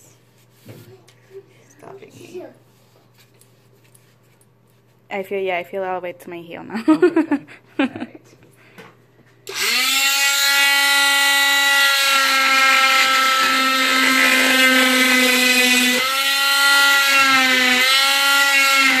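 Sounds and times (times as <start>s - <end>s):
cast saw whining: 9.5s - 19.0s.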